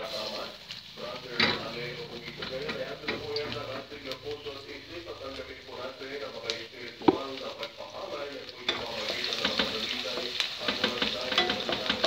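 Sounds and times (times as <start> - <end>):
garlic sizzling in oil: 0.0 - 12.0.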